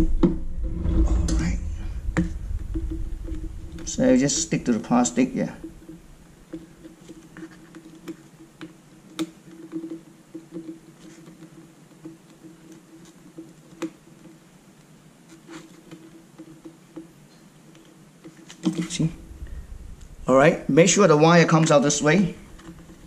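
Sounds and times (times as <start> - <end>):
faint steady hum: 0.0 - 23.0
small clicks and taps on plastic: 5.8 - 19.0.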